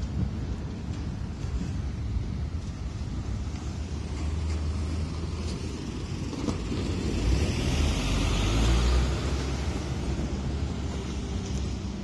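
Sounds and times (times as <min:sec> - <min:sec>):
traffic rumble: 0:00.0 - 0:12.0
car passing by: 0:02.5 - 0:12.0.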